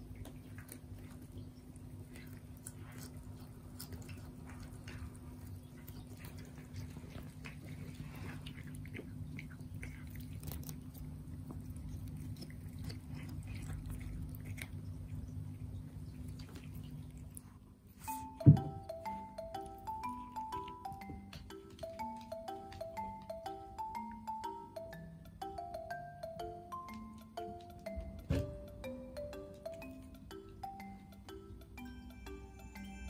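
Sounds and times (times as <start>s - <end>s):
cats chewing grass: 0.0s - 24.3s.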